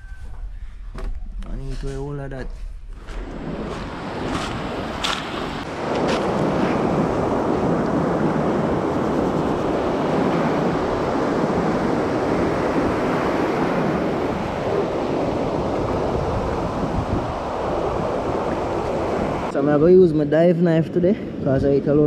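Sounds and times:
surf washing up pebble shore: 0:03.1 - 0:19.6.

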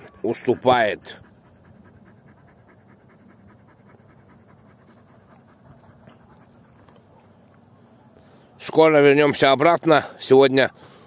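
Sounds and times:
dog panting: 0:00.0 - 0:08.1.

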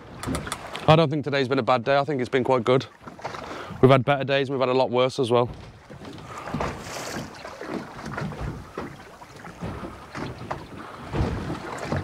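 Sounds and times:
water slapping against boat hull: 0:00.0 - 0:04.1, 0:05.2 - 0:12.0
sea wash: 0:00.0 - 0:12.0
wind buffeting microphone: 0:05.3 - 0:12.0.

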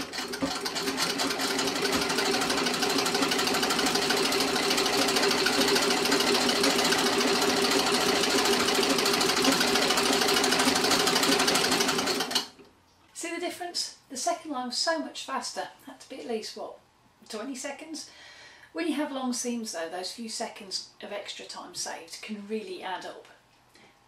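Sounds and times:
sewing machine rattling: 0:00.0 - 0:12.6.

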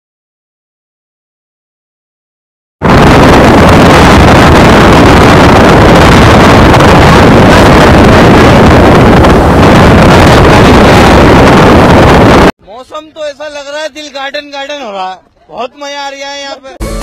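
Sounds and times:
wind buffeting microphone: 0:02.8 - 0:12.5.

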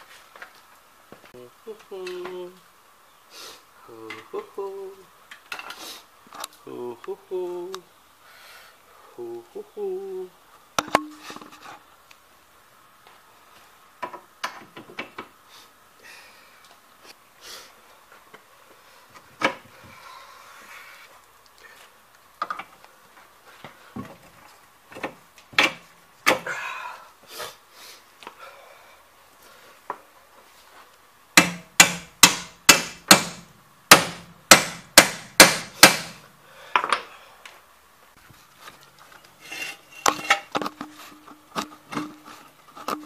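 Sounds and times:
tools knocking and clinking: 0:10.8 - 0:11.5
hammer striking metal: 0:31.4 - 0:36.2.

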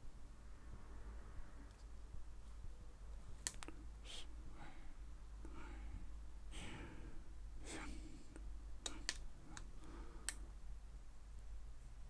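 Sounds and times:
soft breath-like sounds: 0:03.6 - 0:10.6.

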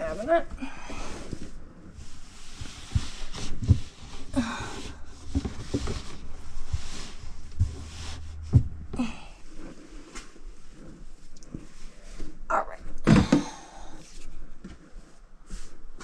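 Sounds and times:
canvas cloth rustling: 0:00.0 - 0:12.1.

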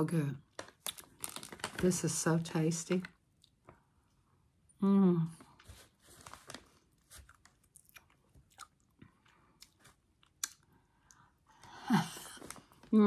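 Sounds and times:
person chewing: 0:06.9 - 0:11.3.

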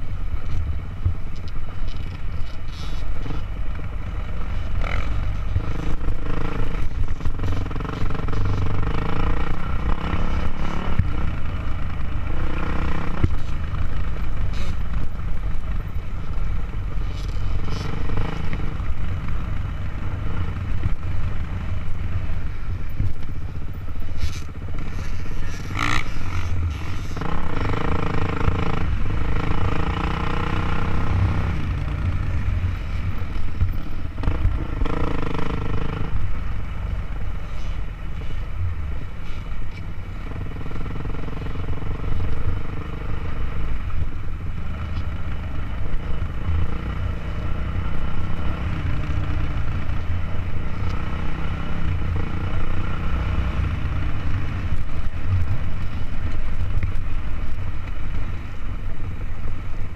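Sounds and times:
dirt bike engine revving: 0:04.8 - 0:13.6, 0:24.3 - 0:32.5, 0:33.7 - 0:36.2.

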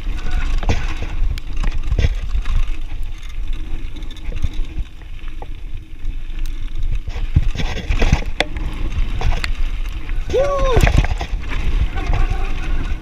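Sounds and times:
bike clattering over rough ground: 0:00.0 - 0:13.0
bike tyres rumbling on gravel: 0:00.0 - 0:13.0
wind on microphone: 0:06.9 - 0:13.0.

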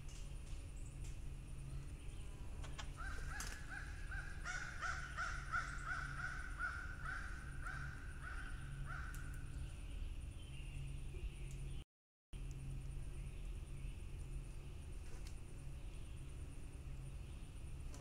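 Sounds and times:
crows cawing: 0:02.9 - 0:09.4.

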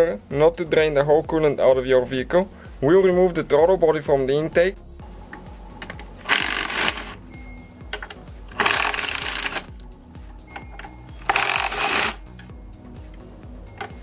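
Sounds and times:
background music: 0:00.0 - 0:14.0
ratchet rattling: 0:05.8 - 0:07.2, 0:07.9 - 0:09.7, 0:10.5 - 0:12.5.

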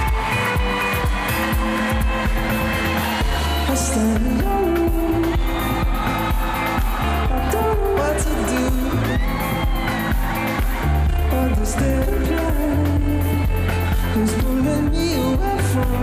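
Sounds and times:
heavy pulsing bass line: 0:00.0 - 0:16.0
live pop-rock band: 0:00.0 - 0:16.0
man singing: 0:03.5 - 0:06.0, 0:07.1 - 0:09.8, 0:11.0 - 0:16.0.

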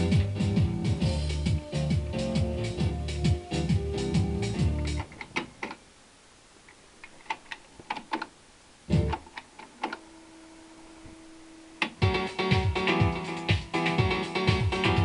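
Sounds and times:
stereo music: 0:00.0 - 0:05.6, 0:08.8 - 0:15.0
faint steady hum: 0:00.0 - 0:15.0
stereo control clicks: 0:04.8 - 0:05.8, 0:06.7 - 0:10.0, 0:11.8 - 0:12.1.

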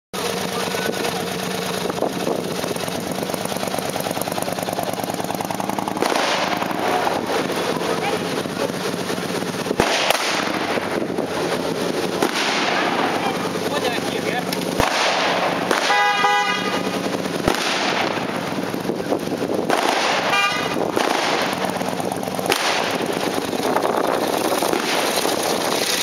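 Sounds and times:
sharp gunshot crack: 0:05.8 - 0:07.6, 0:09.7 - 0:11.0, 0:12.0 - 0:13.4, 0:14.6 - 0:16.7, 0:17.3 - 0:18.6, 0:19.6 - 0:23.4, 0:24.7 - 0:25.2
blank gunfire shots: 0:05.9 - 0:07.5, 0:09.7 - 0:11.0, 0:12.1 - 0:13.3, 0:14.8 - 0:16.3, 0:17.4 - 0:18.6, 0:19.6 - 0:23.4, 0:24.7 - 0:25.2.

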